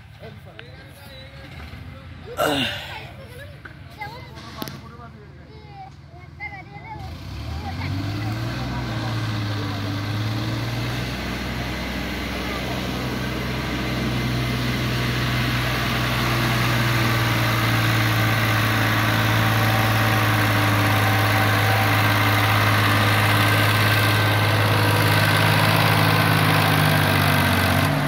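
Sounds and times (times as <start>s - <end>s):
diesel tractor engine under load: 6.0s - 28.0s.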